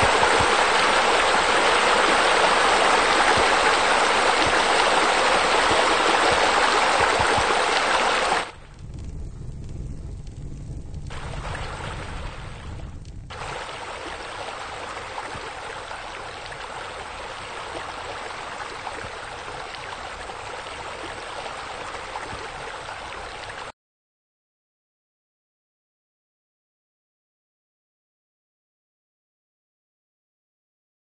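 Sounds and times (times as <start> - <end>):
water splashing: 0.0 - 9.1, 11.0 - 23.7.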